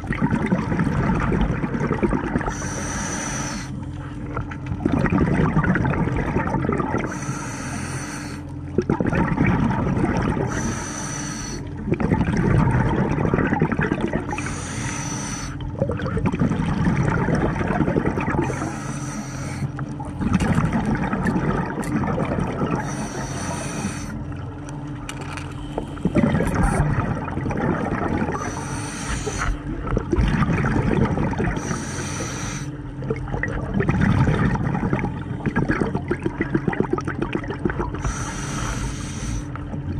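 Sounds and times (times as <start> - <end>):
exhaled bubbles rushing: 0.0 - 7.7, 8.5 - 25.0, 25.7 - 39.9
regulator hiss on inhale: 2.5 - 3.8, 7.1 - 8.5, 10.5 - 11.7, 14.3 - 15.6, 18.5 - 19.7, 22.8 - 24.2, 28.4 - 29.6, 31.6 - 32.7, 38.0 - 39.6.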